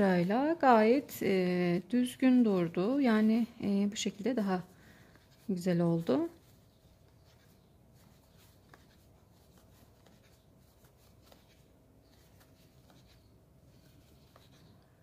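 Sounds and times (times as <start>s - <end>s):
crochet hook rubbing yarn: 5.1s - 14.8s.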